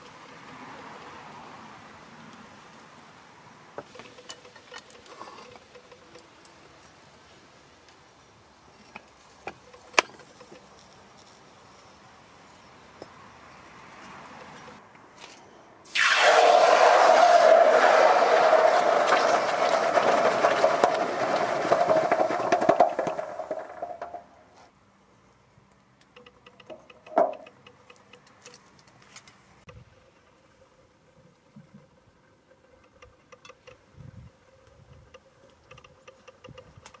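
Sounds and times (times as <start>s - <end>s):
hot metal hissing in water: 15.9s - 20.7s.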